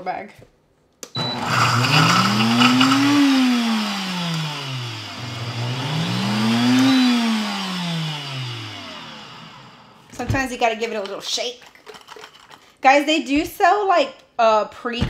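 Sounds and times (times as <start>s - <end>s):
blender motor whine: 1.2s - 10.3s.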